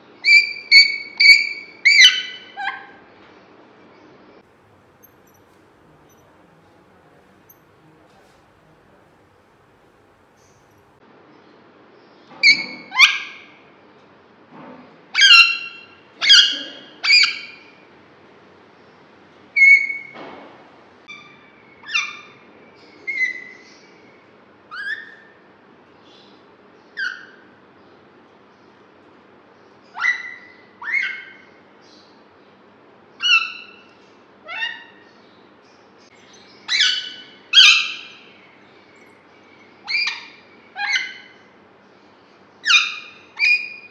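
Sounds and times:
parakeet calling: 4.9s - 10.8s, 36.7s - 38.2s.

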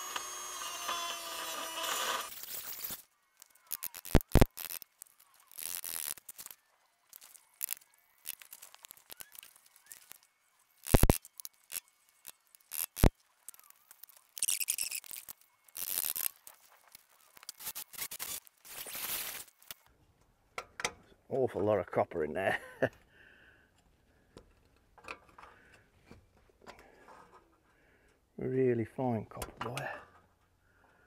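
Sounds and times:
screwdriver scraping metal: 5.4s - 6.5s, 10.8s - 16.5s
sharp metallic clicks: 10.8s - 13.1s.

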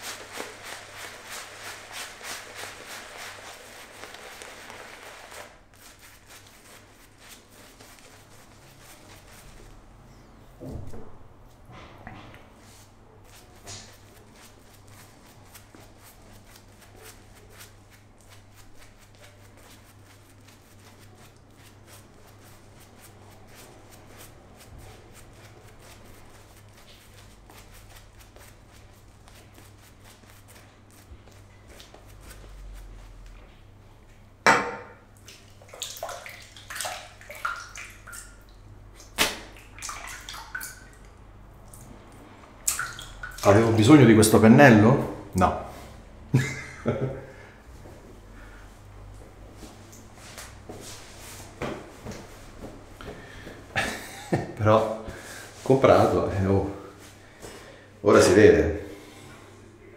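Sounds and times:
shaving brush crackling on skin: 0.0s - 9.8s, 13.3s - 33.4s.

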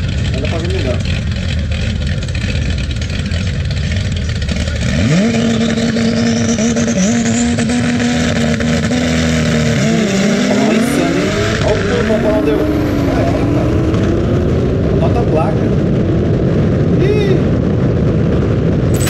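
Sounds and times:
drag car engines idling: 0.0s - 8.4s
engine revving high: 0.0s - 19.0s.

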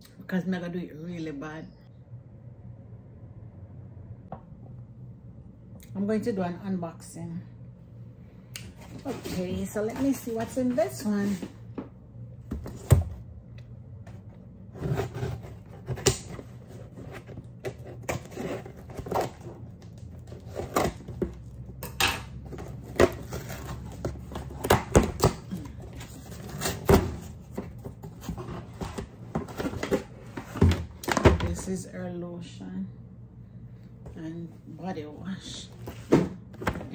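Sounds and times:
cardboard scraping and knocking: 14.7s - 19.6s.

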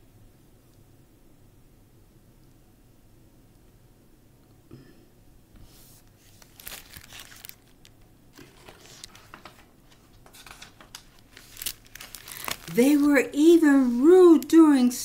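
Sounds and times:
paper pages rustling: 5.6s - 15.0s.

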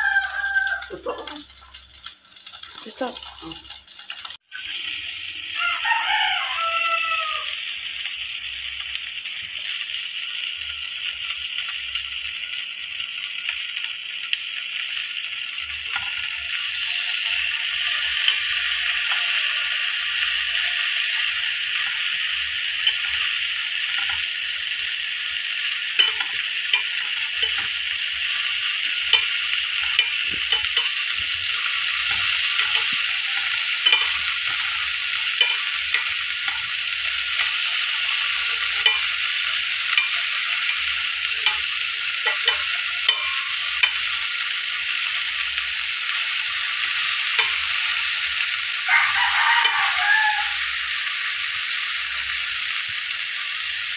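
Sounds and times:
eggplant sizzling in a pan: 0.0s - 53.9s
tongs clicking against pan: 22.7s - 24.3s, 25.6s - 44.5s, 46.4s - 48.2s.

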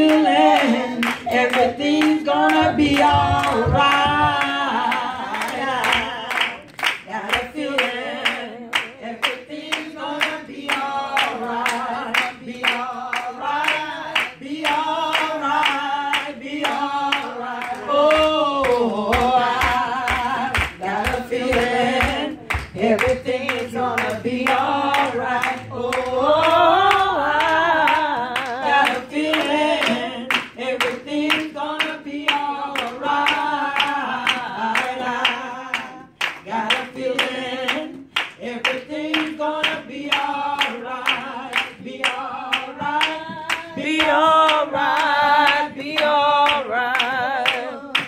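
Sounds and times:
hand-clapping: 0.0s - 48.0s
women singing gospel song: 0.0s - 48.0s.

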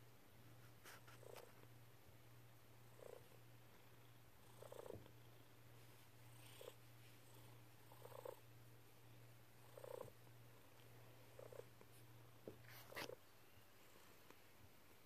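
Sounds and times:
cat purring: 0.8s - 1.7s, 2.8s - 13.2s.

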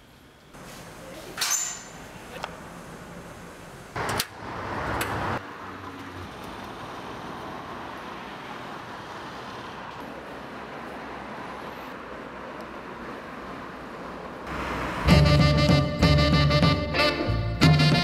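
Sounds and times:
city street traffic: 0.0s - 18.0s
metal gate clanking: 1.4s - 2.1s.

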